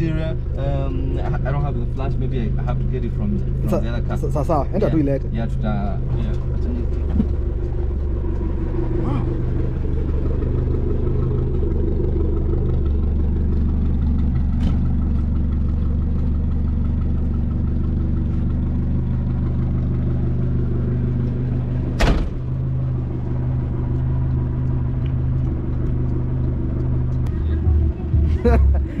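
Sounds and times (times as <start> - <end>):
truck engine idling: 0.0 - 29.0
sharp thump: 21.9 - 22.4.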